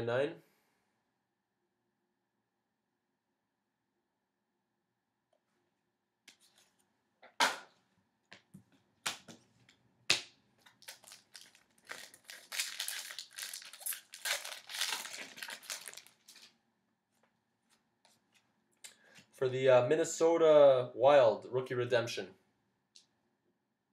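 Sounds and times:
plastic packaging crinkling: 0:10.6 - 0:16.6.

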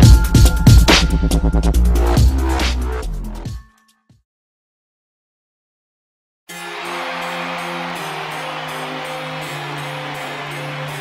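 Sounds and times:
background music with held notes: 0:06.5 - 0:11.0.

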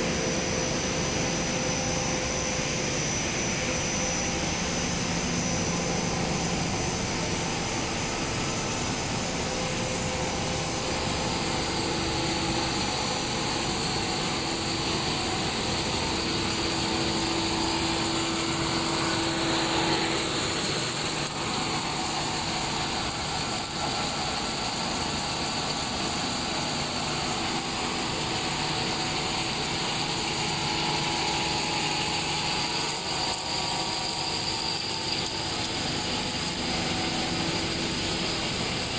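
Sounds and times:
machine drone: 0:00.0 - 0:38.9.

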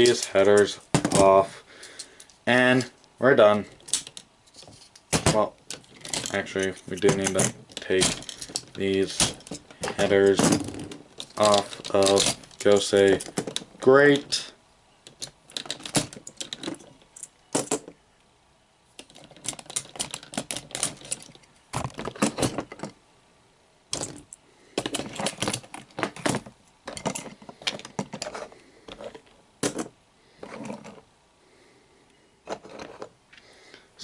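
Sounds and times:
plastic toy parts clicking: 0:03.8 - 0:13.7, 0:15.0 - 0:18.0, 0:19.0 - 0:22.8.

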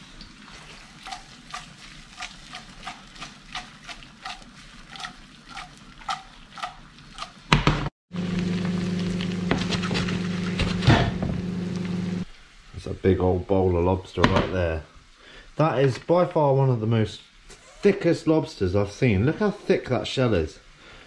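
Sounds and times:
onions sizzling: 0:00.0 - 0:12.7
oil crackles: 0:00.4 - 0:07.6, 0:08.2 - 0:10.8.

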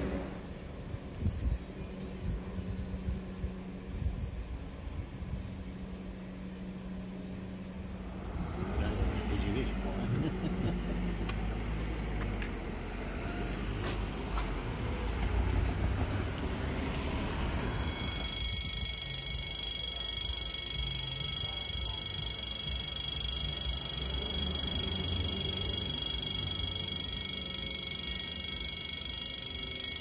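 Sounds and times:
passing vehicle rumble: 0:07.4 - 0:18.2
level crossing warning bell: 0:17.3 - 0:30.0.

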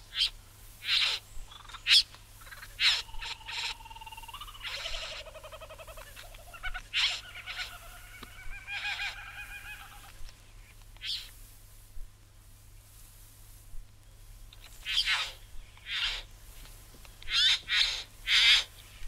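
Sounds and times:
buzzing pulsing bird calls: 0:00.0 - 0:10.3, 0:11.0 - 0:11.4, 0:14.6 - 0:16.5, 0:17.2 - 0:19.0
bird calling with sharp notes: 0:00.1 - 0:10.1, 0:11.0 - 0:11.3, 0:14.7 - 0:16.3, 0:17.2 - 0:18.8.

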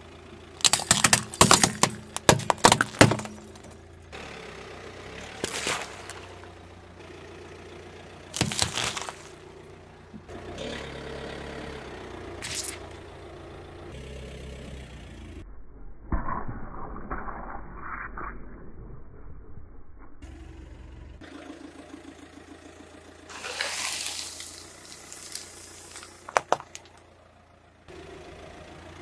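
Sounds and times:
tyre crushing vegetables: 0:00.6 - 0:03.7, 0:05.4 - 0:06.2, 0:08.4 - 0:09.4
plastic toys cracking under tyre: 0:00.6 - 0:03.8, 0:05.4 - 0:06.3, 0:08.4 - 0:09.4, 0:23.3 - 0:27.1.

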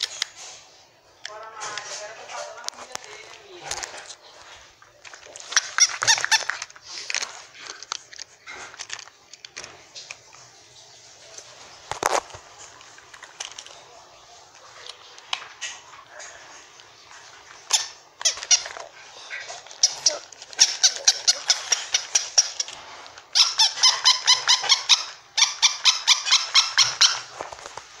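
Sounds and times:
plush toy squeaker squeaking: 0:05.4 - 0:06.7, 0:17.6 - 0:27.4.

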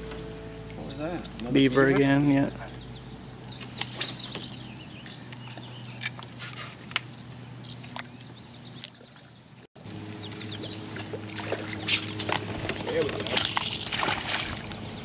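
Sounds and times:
small birds chirping: 0:00.0 - 0:12.2
steady low hum: 0:00.0 - 0:15.0.

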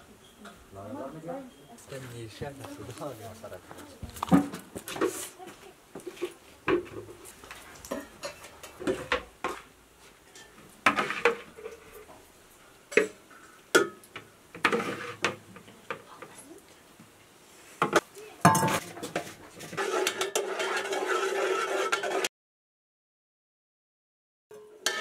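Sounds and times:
ladle scraping in plastic bucket: 0:10.9 - 0:12.0, 0:14.6 - 0:15.4, 0:18.6 - 0:22.3.

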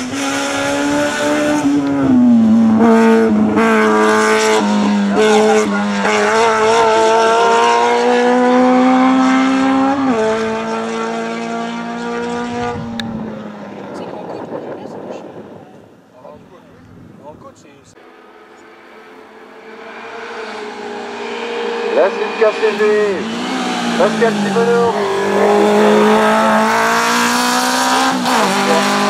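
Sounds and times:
race car engine revving: 0:00.0 - 0:15.6, 0:18.1 - 0:29.0.

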